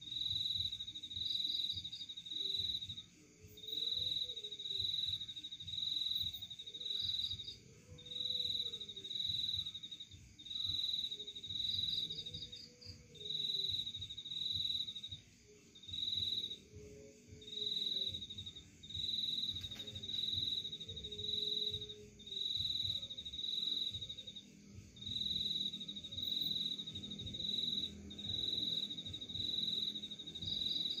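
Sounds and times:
cricket chirping: 0:00.0 - 0:31.0.

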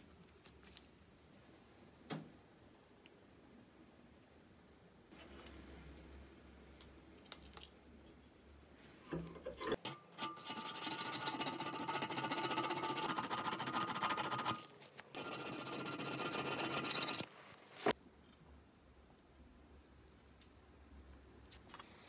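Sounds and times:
hand file rasping on steel: 0:09.8 - 0:17.3.

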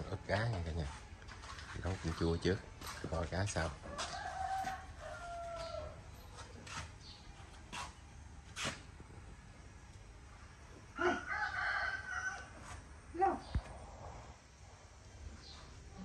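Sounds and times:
rooster crowing: 0:03.8 - 0:06.2, 0:11.0 - 0:12.8.

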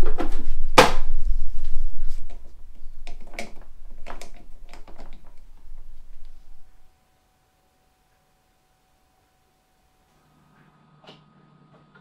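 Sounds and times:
low rumble: 0:00.0 - 0:06.9.

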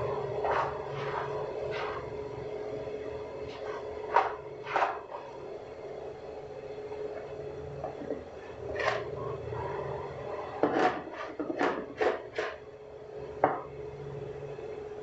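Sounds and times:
hand scraping dough from bowl: 0:00.3 - 0:02.2, 0:03.4 - 0:05.4, 0:07.8 - 0:09.2, 0:10.6 - 0:12.6.

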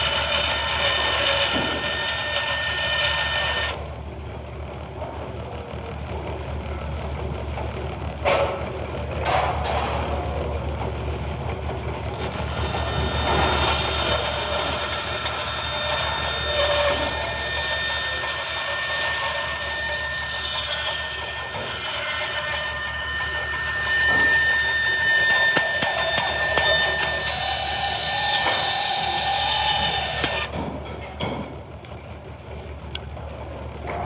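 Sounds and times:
high-pitched whine: 0:00.0 - 0:03.8, 0:12.1 - 0:30.6
power tool running loudly: 0:00.0 - 0:04.0, 0:11.7 - 0:30.6.

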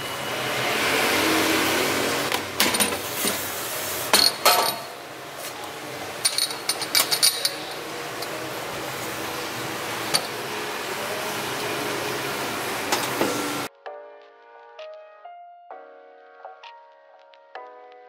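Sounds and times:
rushing noise: 0:00.0 - 0:02.6.

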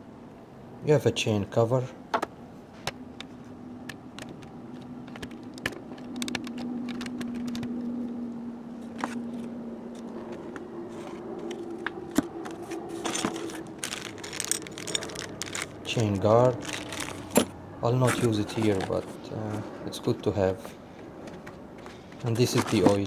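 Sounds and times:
steady low hum: 0:00.0 - 0:23.0
hands handling cardboard packaging: 0:08.9 - 0:19.6, 0:21.3 - 0:23.0
plastic bag crinkling: 0:13.0 - 0:17.5.

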